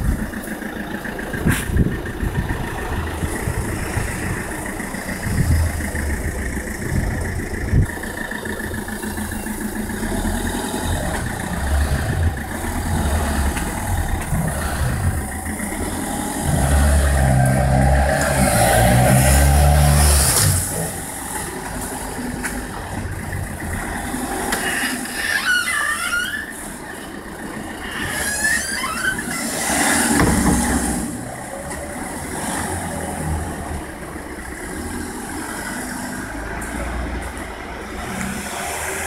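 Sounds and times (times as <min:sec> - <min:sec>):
car engines and passing vehicles: 0:00.0 - 0:39.0
heavy engine rumble: 0:00.0 - 0:39.0
high wavering squeals: 0:24.6 - 0:30.2.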